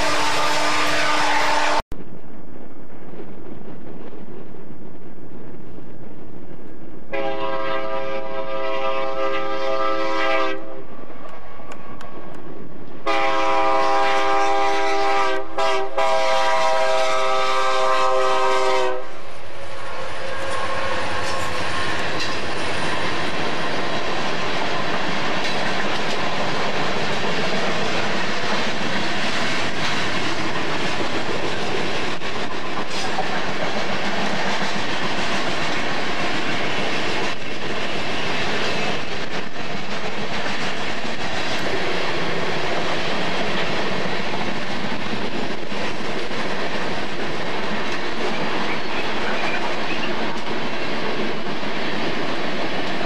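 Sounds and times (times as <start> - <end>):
locomotive air horn blasts: 0.0 - 1.8, 7.1 - 10.8, 13.0 - 19.2
train cars rumbling past: 0.0 - 53.0
wheels clickety-clack: 21.1 - 53.0.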